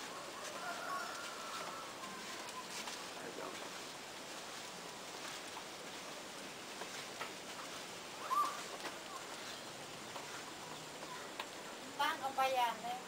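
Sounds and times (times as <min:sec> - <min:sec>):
background hiss: 0:00.0 - 0:13.0
bird chirp: 0:08.2 - 0:11.9.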